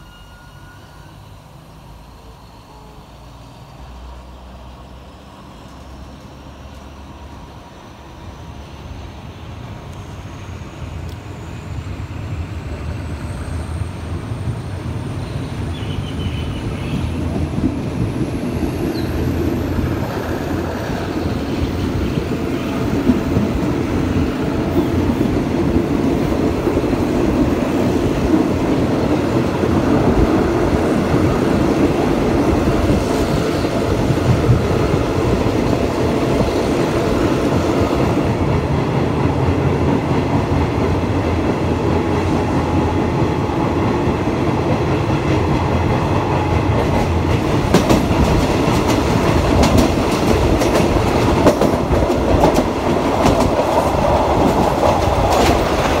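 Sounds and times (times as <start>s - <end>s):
train wheels rumbling on rails: 0.0s - 56.0s
wheels clacking over rail joints: 46.4s - 56.0s.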